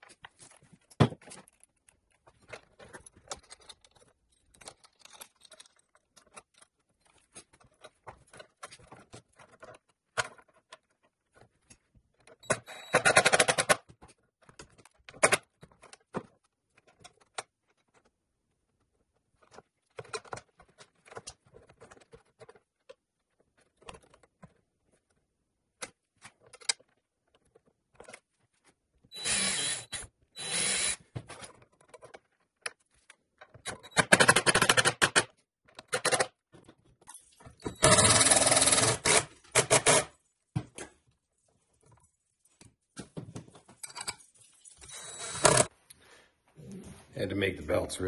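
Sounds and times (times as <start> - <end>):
cordless drill driving screws: 29.1 - 31.0, 37.7 - 40.0, 44.8 - 45.7.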